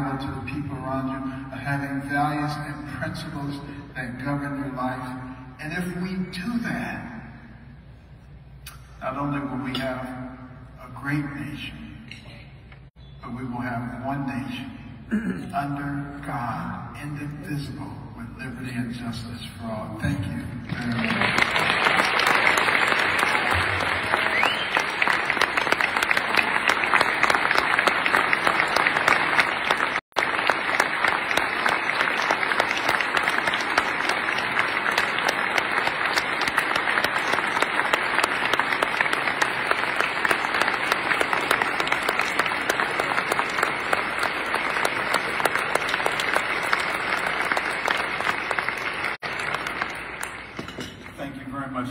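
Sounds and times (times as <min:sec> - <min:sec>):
audience applause: 0:20.7 - 0:50.7.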